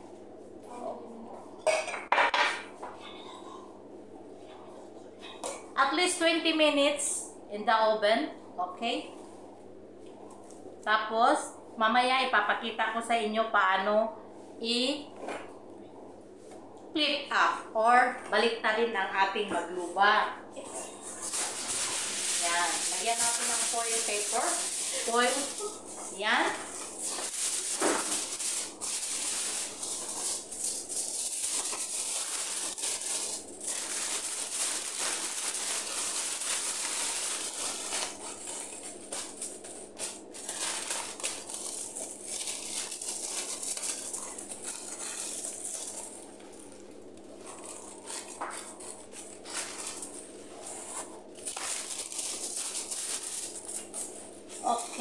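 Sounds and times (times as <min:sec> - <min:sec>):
aluminium foil crinkling: 0:20.6 - 0:55.0.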